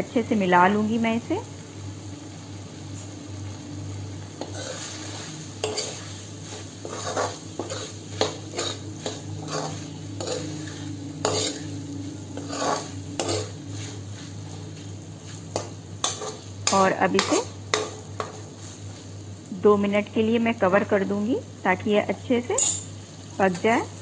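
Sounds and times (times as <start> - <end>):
low steady hum: 0.0 - 24.0
spoon scraping metal pan: 4.4 - 11.8, 12.4 - 14.0, 15.5 - 18.4.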